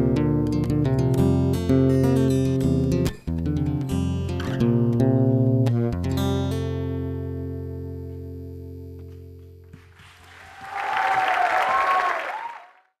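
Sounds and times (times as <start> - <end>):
audience applause and cheering: 9.8 - 13.0.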